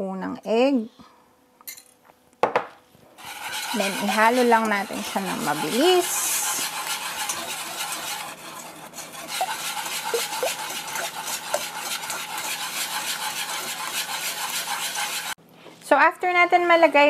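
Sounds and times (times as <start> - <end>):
whisk clicking against saucepan: 3.2 - 15.4.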